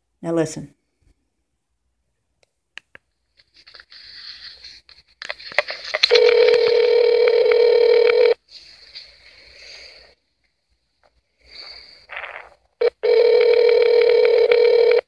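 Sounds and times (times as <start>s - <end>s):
phone line clicks: 6.1s - 8.4s
phone line hiss: 6.1s - 8.4s, 12.1s - 15.0s
telephone ringback tone: 6.1s - 8.4s, 12.8s - 15.0s.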